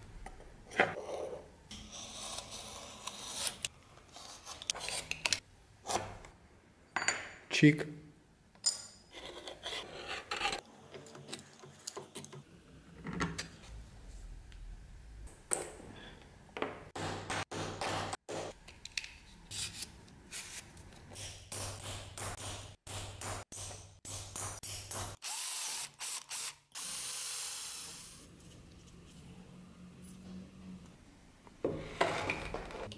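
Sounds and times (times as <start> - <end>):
power drill boring metal: 25.2 - 28.2.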